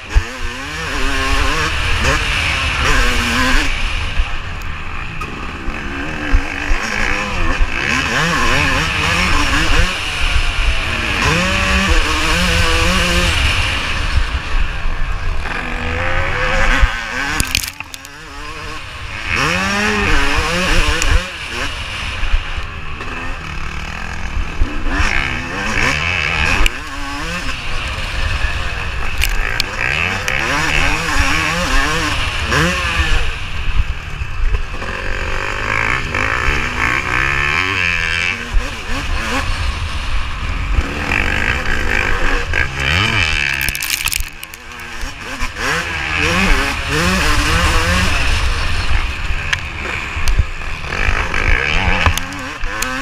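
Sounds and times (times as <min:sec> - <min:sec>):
motocross engine revving: 0:00.0 - 0:53.0.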